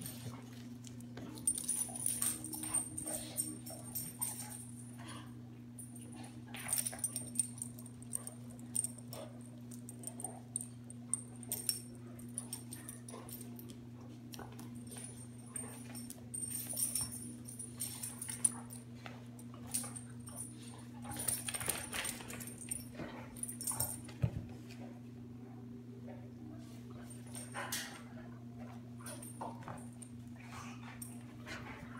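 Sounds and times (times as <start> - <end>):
steady low hum: 0.0 - 31.9
collar tags jingling: 1.2 - 5.2, 5.8 - 13.8, 14.4 - 24.2
dogs scuffling: 11.5 - 24.8.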